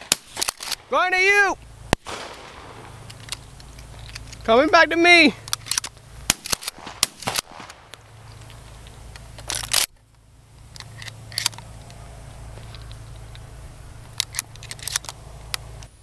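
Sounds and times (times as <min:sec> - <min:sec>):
steady low hum: 0:00.0 - 0:16.0
shotgun clicks and knocks: 0:05.4 - 0:10.0.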